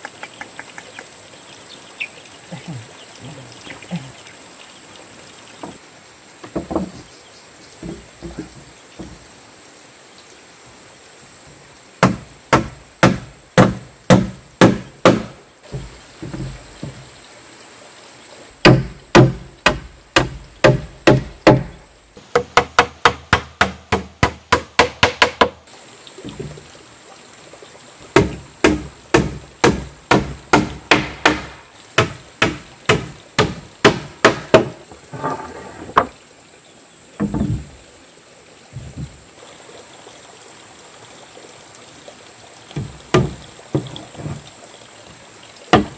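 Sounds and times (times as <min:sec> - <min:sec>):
hammer nailing wooden planks: 0:12.0 - 0:16.6, 0:18.6 - 0:25.6, 0:28.2 - 0:34.8.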